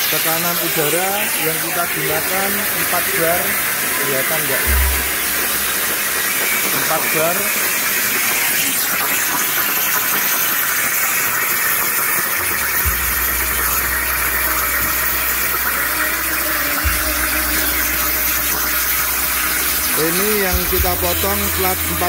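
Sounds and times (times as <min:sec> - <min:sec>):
plasma torch hissing: 0:00.0 - 0:22.0
low hum: 0:04.6 - 0:06.2.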